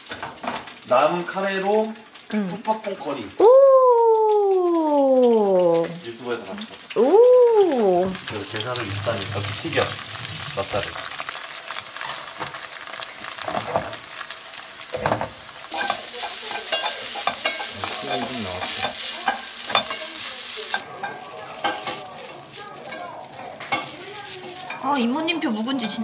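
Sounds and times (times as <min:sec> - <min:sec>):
food sizzling in oil: 0:00.0 - 0:26.0
rice and garlic sizzling: 0:00.0 - 0:26.0
wooden spatula scraping pan: 0:08.2 - 0:11.0.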